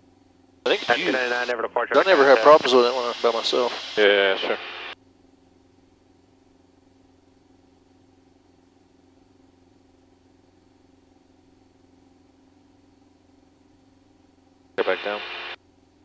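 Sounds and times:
distant aircraft engine drone: 0.7s - 5.6s, 13.9s - 15.6s.

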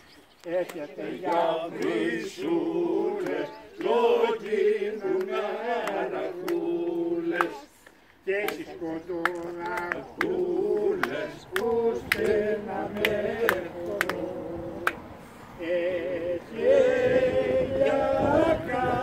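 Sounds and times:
hand claps: 0.4s - 2.0s, 3.2s - 15.0s
group singing unaccompanied: 0.4s - 19.0s.

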